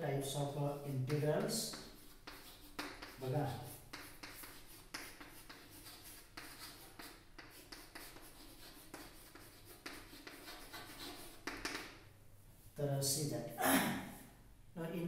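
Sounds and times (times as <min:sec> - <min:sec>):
chalk scratching on blackboard: 0:00.7 - 0:12.0.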